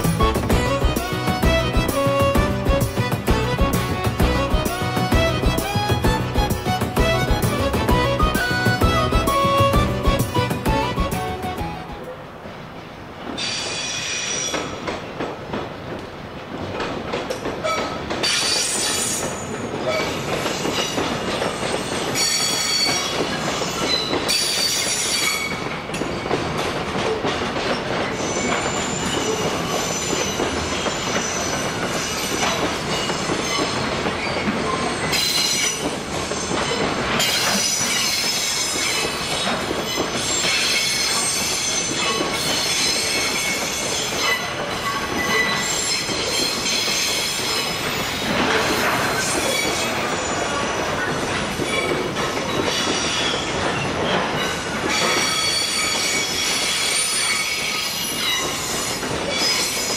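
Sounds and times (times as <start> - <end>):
train rolling rumble: 0.0 - 59.9
train wheels squealing: 13.4 - 14.9, 17.6 - 26.4, 27.6 - 59.9.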